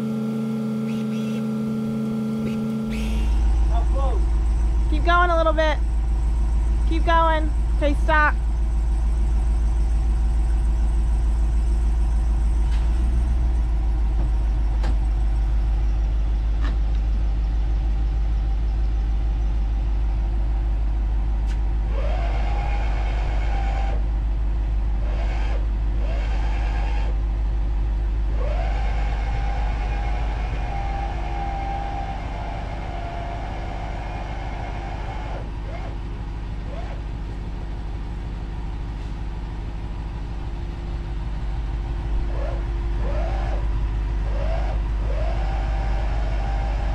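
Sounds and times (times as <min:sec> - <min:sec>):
electric jacks whining: 0:00.0 - 0:15.8, 0:28.2 - 0:37.6, 0:39.9 - 0:46.9
truck engine idling: 0:00.0 - 0:46.9.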